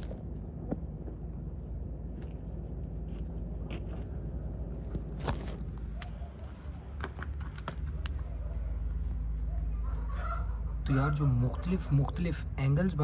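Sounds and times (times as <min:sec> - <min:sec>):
clicks and scrapes near microphone: 0:00.0 - 0:09.2
low steady rumble: 0:00.0 - 0:13.0.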